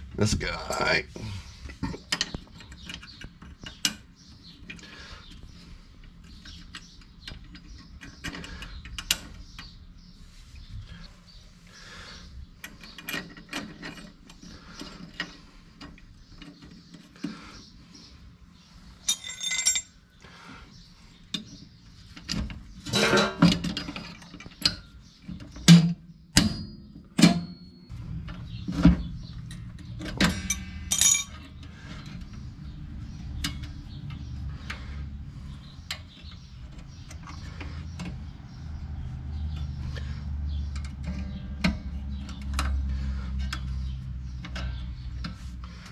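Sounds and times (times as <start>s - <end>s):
metal clicks and clinks: 19.1s - 20.0s, 29.5s - 31.7s.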